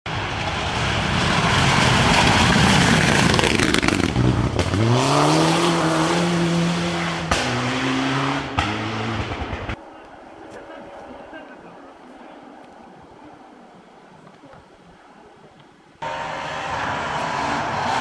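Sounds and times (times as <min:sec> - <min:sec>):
rally car engine at high revs: 0:01.1 - 0:09.8, 0:16.0 - 0:18.0
tyres on gravel: 0:08.6 - 0:18.0.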